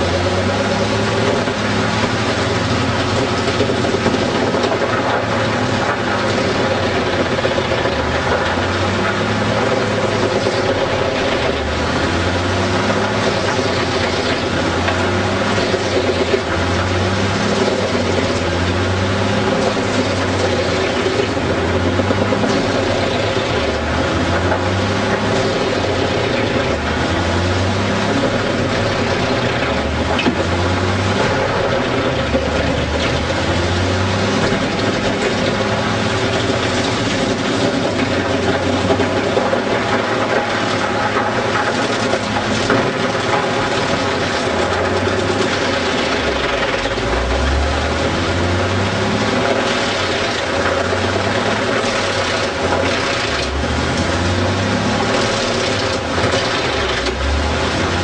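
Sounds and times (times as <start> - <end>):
wood chipper engine under load: 0.0 - 58.0.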